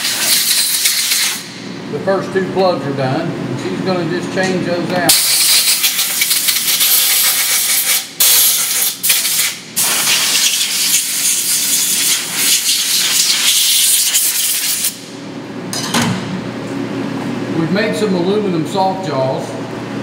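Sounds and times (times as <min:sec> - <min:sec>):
compressed air blow gun hissing: 0:05.1 - 0:14.9.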